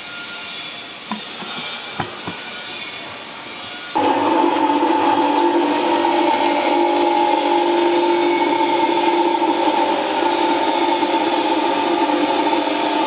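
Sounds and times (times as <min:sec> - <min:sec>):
blender motor whine: 0:04.0 - 0:13.0.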